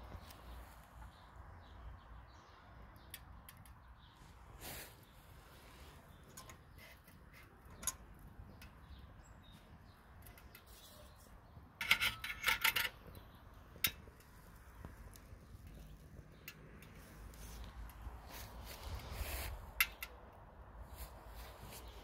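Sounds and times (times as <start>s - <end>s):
metal rod rattling on stove door: 11.8s - 13.2s.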